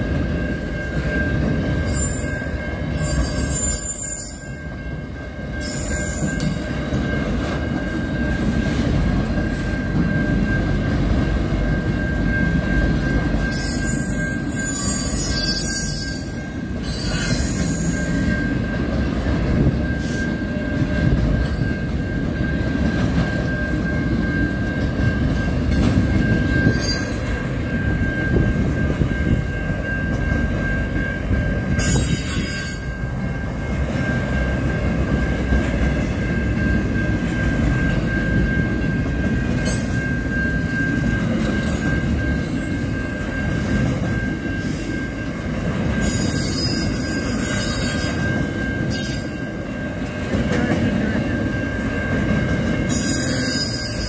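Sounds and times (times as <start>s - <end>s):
train wheels rumbling on rail: 0.0s - 54.0s
high-pitched wheel squeal: 1.8s - 4.6s, 13.0s - 18.3s, 46.0s - 49.4s, 52.9s - 54.0s.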